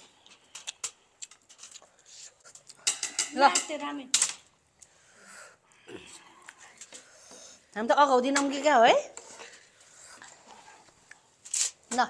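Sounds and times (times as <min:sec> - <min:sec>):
cutlery clinking against dishes: 0:02.8 - 0:04.3.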